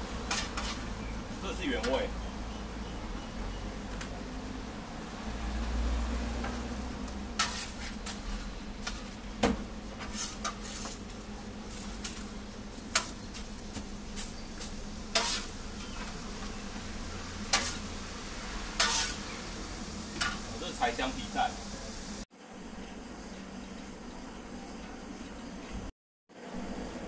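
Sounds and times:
pancake sizzling: 0:00.0 - 0:02.0, 0:05.7 - 0:22.3
spatula scraping metal griddle: 0:00.2 - 0:02.1, 0:07.3 - 0:09.2, 0:09.8 - 0:18.0, 0:18.6 - 0:19.4, 0:20.2 - 0:20.7.

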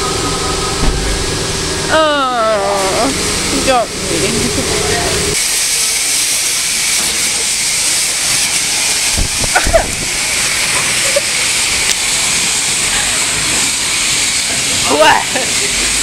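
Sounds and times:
pressure washer spray hissing: 0:00.7 - 0:16.0
brief knocks: 0:00.8 - 0:01.4.

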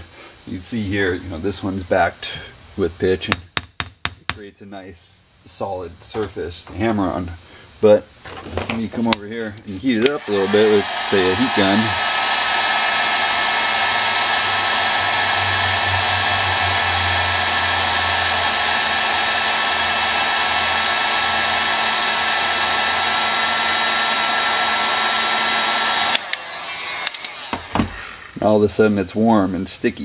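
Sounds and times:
heat gun switch click: 0:10.0 - 0:10.2, 0:26.1 - 0:28.0
heat gun blowing with whine: 0:10.0 - 0:28.8.

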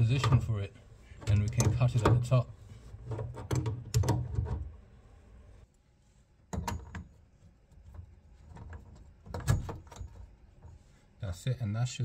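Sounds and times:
metal fittings clicking and knocking: 0:01.2 - 0:02.4, 0:03.0 - 0:04.6.

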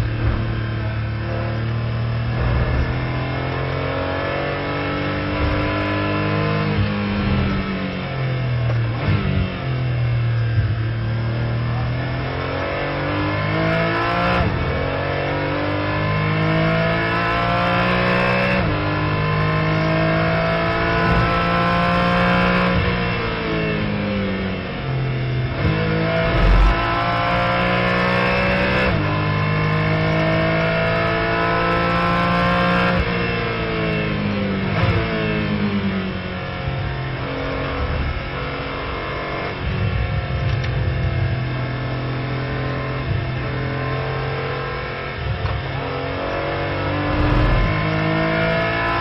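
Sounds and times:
race car engine accelerating: 0:00.0 - 0:08.0, 0:11.3 - 0:35.8, 0:41.6 - 0:49.0
low thump: 0:20.8 - 0:21.8, 0:26.2 - 0:27.8, 0:47.1 - 0:47.8.

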